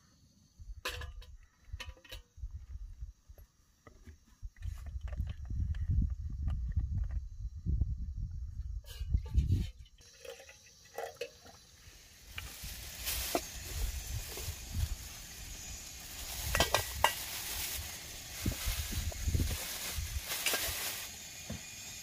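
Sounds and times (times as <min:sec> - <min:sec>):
water poured into kettle: 0:09.3 - 0:11.7
plastic bag crinkling: 0:12.4 - 0:15.3, 0:16.0 - 0:21.2.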